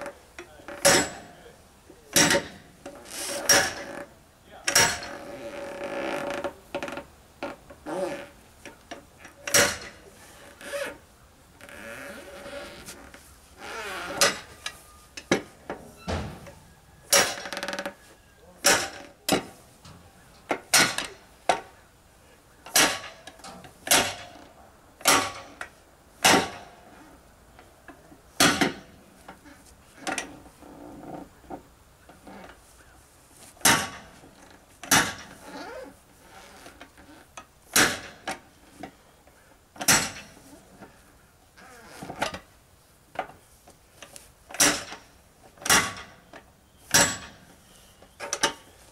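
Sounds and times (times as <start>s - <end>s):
steel bar striking tire rim: 46.9s - 47.4s.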